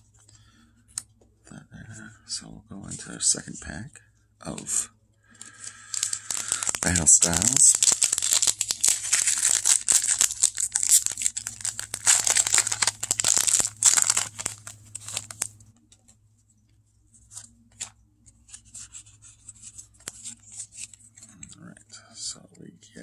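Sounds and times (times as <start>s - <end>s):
foil wrapper tearing and crinkling: 5.4s - 15.5s
cards rustling: 5.4s - 16.2s, 17.2s - 21.5s.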